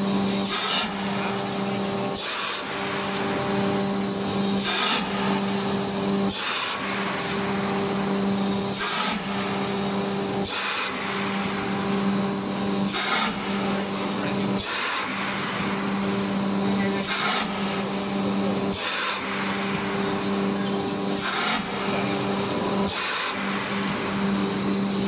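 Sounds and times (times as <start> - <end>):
machine humming: 0.0 - 25.0
air hissing blasts: 8.7 - 9.6.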